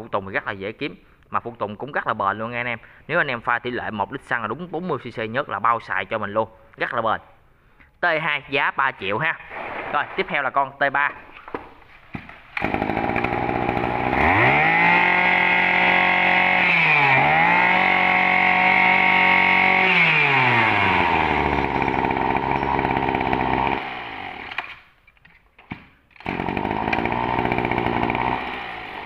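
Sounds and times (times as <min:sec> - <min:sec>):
brush cutter engine revving: 0:12.6 - 0:24.7, 0:26.2 - 0:29.0.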